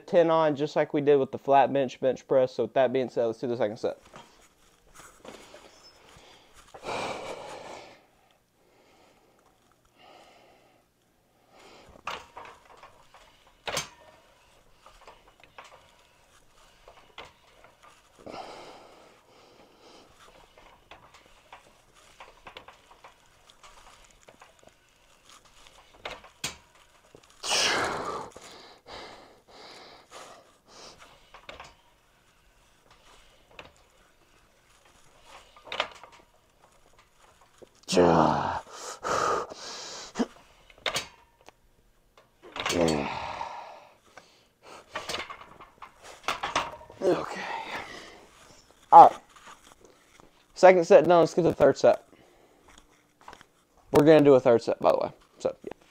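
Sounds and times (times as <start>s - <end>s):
person exhaling and gasping: 6.2s - 8.1s, 18.2s - 20.1s, 27.4s - 31.0s, 37.8s - 40.4s, 42.6s - 44.9s, 47.0s - 48.3s
weights clicking and knocking: 12.0s - 18.3s, 44.8s - 47.0s.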